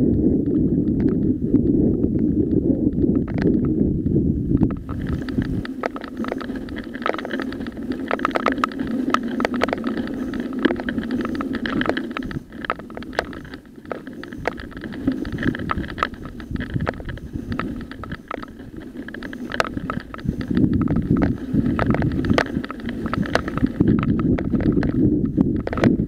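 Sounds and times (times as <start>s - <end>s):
bike rattling over bumps: 0.0s - 26.0s
bike tyres crunching on gravel: 4.6s - 26.0s.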